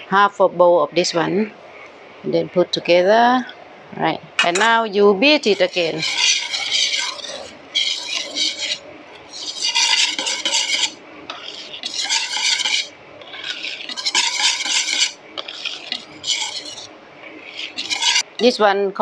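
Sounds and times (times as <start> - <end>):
whisk beating batter in metal bowl: 4.4 - 18.6.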